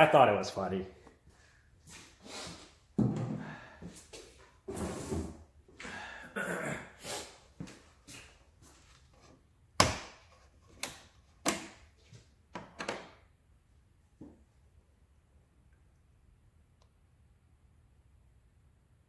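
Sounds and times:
plastic jug rustling and scraping: 0:04.6 - 0:05.4.

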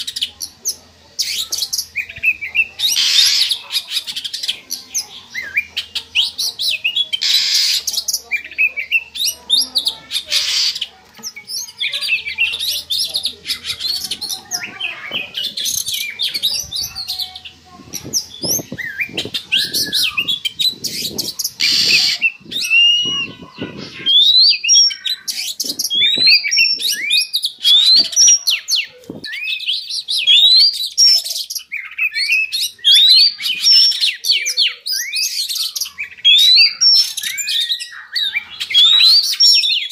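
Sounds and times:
bird singing chirps and whistles: 0:04.4 - 0:39.9.

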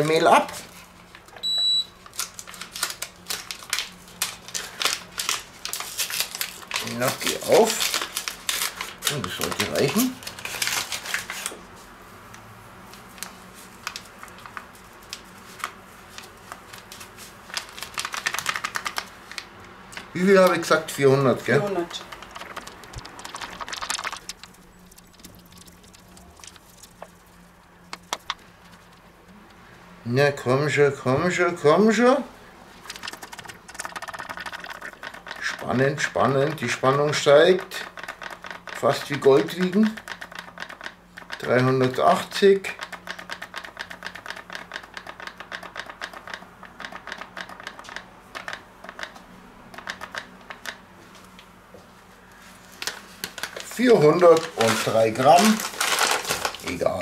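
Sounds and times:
paper bag crackling: 0:02.0 - 0:11.6, 0:12.9 - 0:19.5, 0:20.1 - 0:29.6, 0:32.8 - 0:35.6, 0:52.6 - 0:57.0
low steady hum: 0:19.1 - 0:38.0
sharp clicks: 0:22.0 - 0:27.2, 0:32.9 - 0:35.6, 0:42.8 - 0:50.8.

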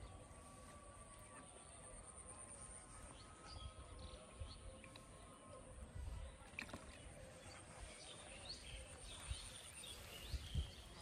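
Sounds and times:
wind rumble on microphone: 0:07.8 - 0:11.0.

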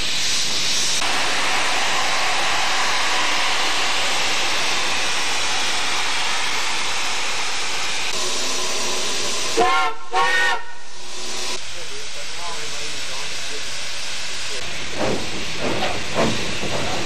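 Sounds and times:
steam venting hiss: 0:00.0 - 0:17.0
steam whistle toots: 0:09.5 - 0:11.0.

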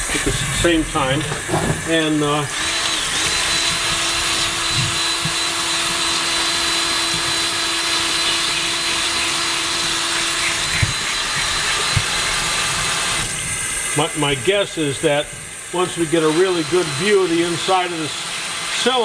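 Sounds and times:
tap water running: 0:00.0 - 0:14.0
electric drill whining: 0:00.0 - 0:19.0.

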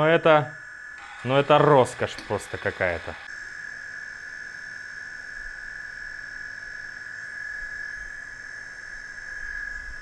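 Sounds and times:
drone motor high-pitched whine: 0:00.0 - 0:10.0.

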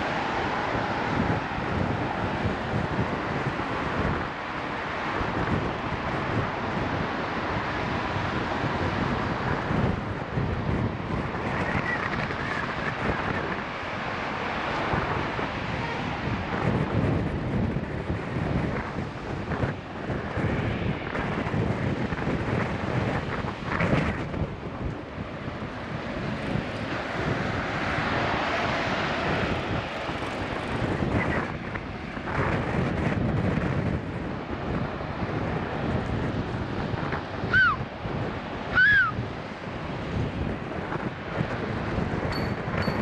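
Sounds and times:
traffic passing close: 0:00.0 - 0:43.0
wind rushing over microphone: 0:00.0 - 0:43.0
short high squeals: 0:37.5 - 0:37.8, 0:38.7 - 0:39.2.

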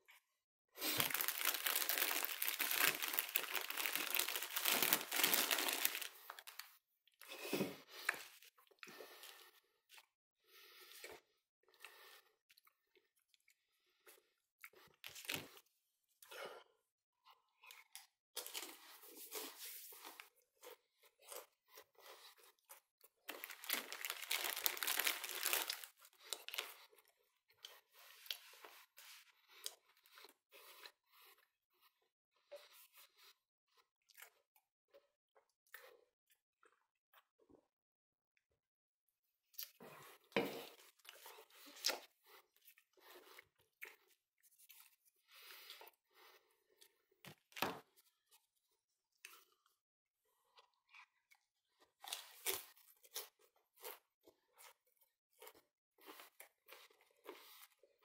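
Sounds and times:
packaging crinkling: 0:00.9 - 0:06.6, 0:23.3 - 0:26.6.

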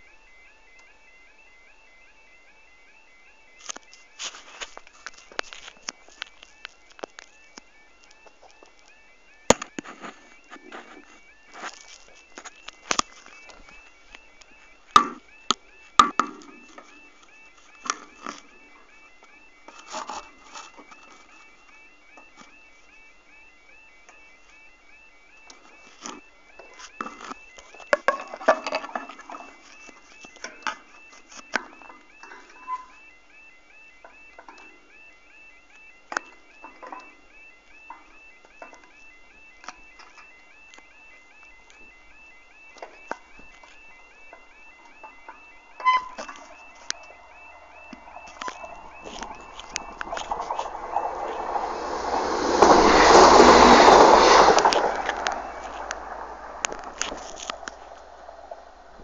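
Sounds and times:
level crossing alarm warbling: 0:00.0 - 0:59.0.

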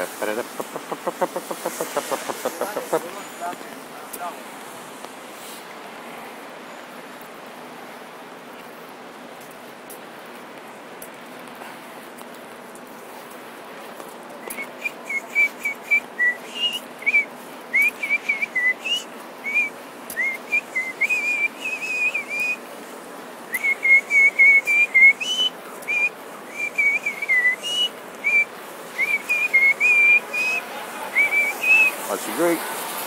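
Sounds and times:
background hiss: 0:00.0 - 0:33.0
person whistling a tune: 0:14.4 - 0:17.2, 0:17.8 - 0:22.6, 0:23.6 - 0:30.6.

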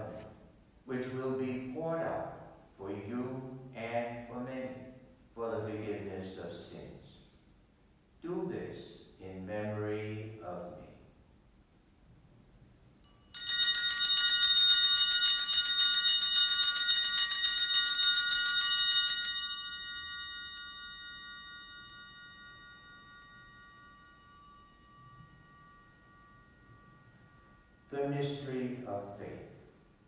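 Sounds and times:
altar bells ringing: 0:13.0 - 0:29.6.

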